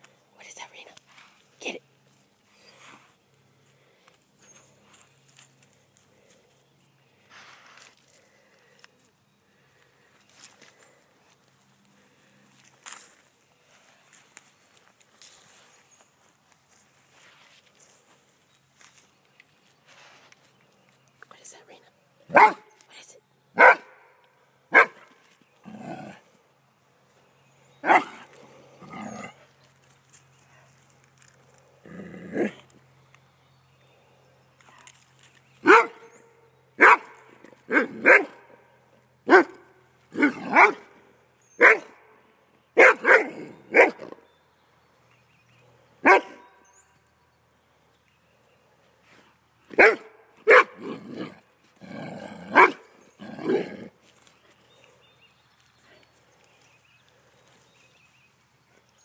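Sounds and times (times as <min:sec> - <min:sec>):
dog barking: 0:22.3 - 0:22.7, 0:23.6 - 0:24.1, 0:24.7 - 0:25.0, 0:27.8 - 0:28.2, 0:35.6 - 0:36.1, 0:36.8 - 0:38.5, 0:39.3 - 0:39.6, 0:40.2 - 0:40.9, 0:41.6 - 0:42.0, 0:42.8 - 0:44.1, 0:46.0 - 0:46.6, 0:49.8 - 0:50.9, 0:52.5 - 0:52.8.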